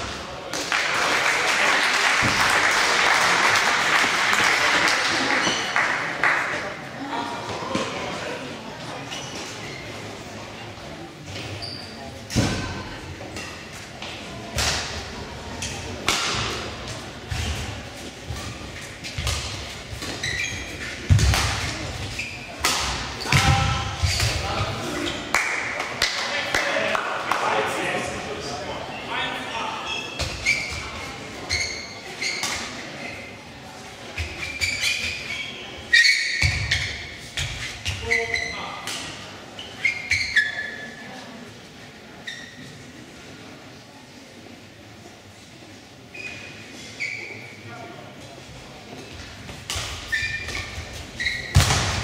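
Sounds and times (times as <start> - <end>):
shoes squeaking: 9.0 - 10.1, 11.3 - 12.2, 17.3 - 25.3, 29.8 - 33.3, 34.1 - 41.0, 42.2 - 42.8, 46.1 - 47.6, 49.2 - 52.0.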